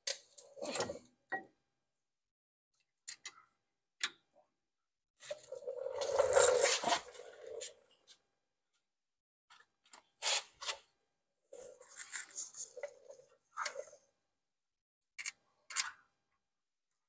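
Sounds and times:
metal scraping on metal: 5.3 - 7.7.

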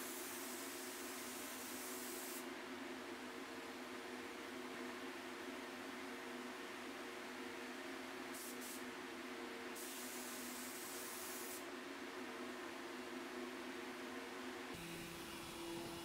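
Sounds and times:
spray gun hissing: 0.0 - 2.4, 8.4 - 8.8, 9.8 - 11.6.

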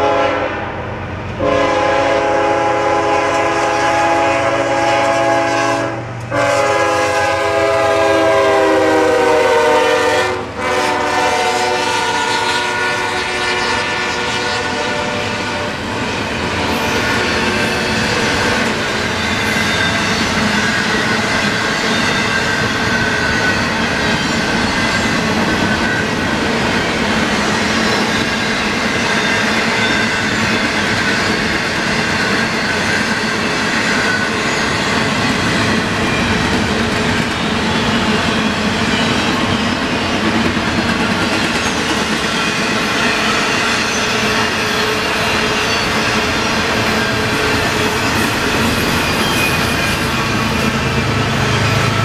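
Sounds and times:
locomotive air horn blowing: 0.0 - 0.8, 1.4 - 16.0
rumble and clatter of rail cars: 0.0 - 52.0.

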